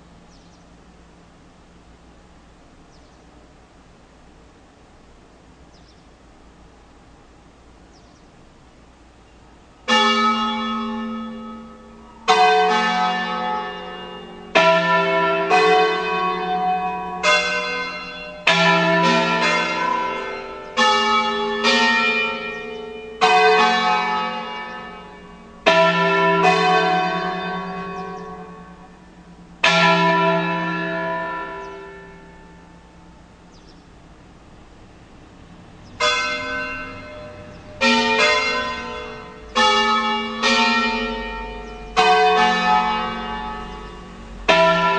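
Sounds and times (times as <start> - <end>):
church bells ringing: 9.8 - 34.1, 35.9 - 44.9.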